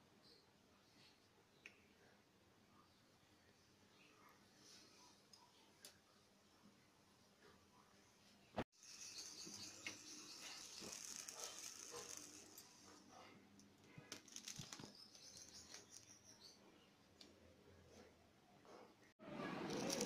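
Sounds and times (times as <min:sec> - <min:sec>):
eggplant skin crackling over flame: 0:09.4 - 0:16.5.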